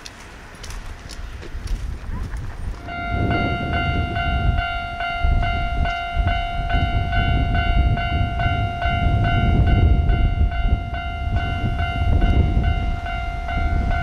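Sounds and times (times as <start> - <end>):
heavy low rumble: 0.6 - 14.0
level crossing warning bell: 2.8 - 14.0.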